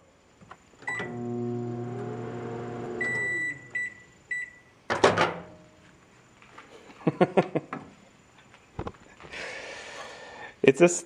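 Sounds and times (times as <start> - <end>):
microwave oven humming: 0.8 - 4.1
high beeps: 3.0 - 4.7
microwave keypad beep: 3.0 - 4.7.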